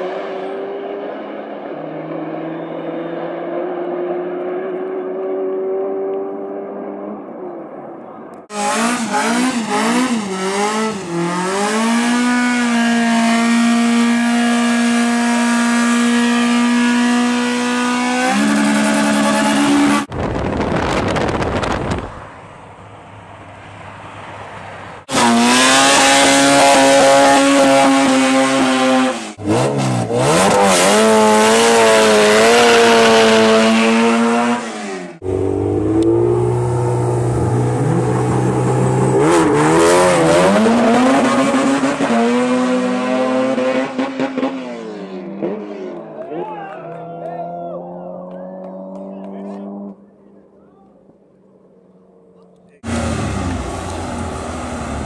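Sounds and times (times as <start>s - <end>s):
car engine revving hard: 8.5s - 20.1s, 25.0s - 46.1s, 52.8s - 55.0s.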